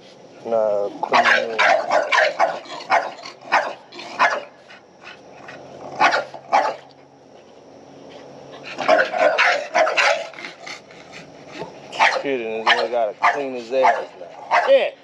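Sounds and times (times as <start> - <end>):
dog barking: 1.1 - 4.6, 6.0 - 6.9, 8.7 - 10.5, 11.6 - 14.9.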